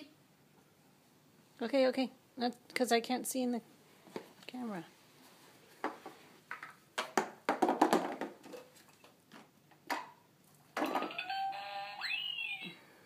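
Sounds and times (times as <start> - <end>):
steady electronic toy tone: 11.3 - 12.8.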